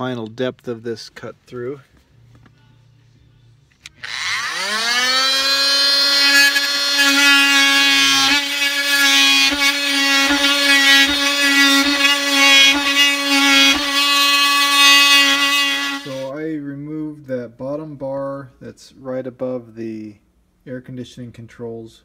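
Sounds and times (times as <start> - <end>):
oscillating multi-tool whine: 4.0 - 16.3.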